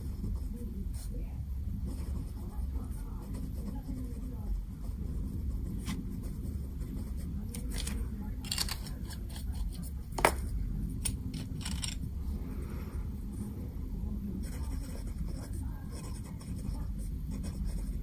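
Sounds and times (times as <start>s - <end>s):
fountain pens clicking and tapping: 7.5s - 10.4s, 11.0s - 12.0s.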